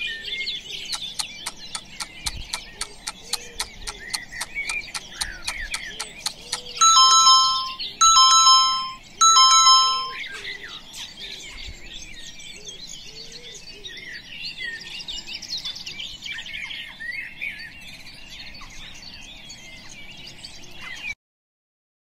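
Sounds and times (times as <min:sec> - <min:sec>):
birds chirping: 0:00.0 - 0:21.2
timer alarm ding-dong chime: 0:06.8 - 0:10.2.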